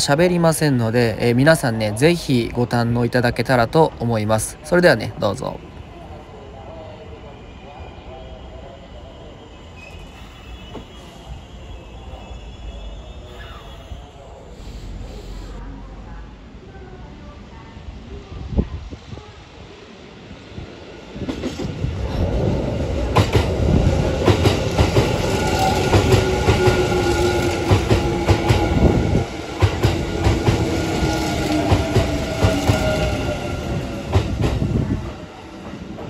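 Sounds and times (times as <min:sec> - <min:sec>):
train whine: 0:05.6 - 0:36.0.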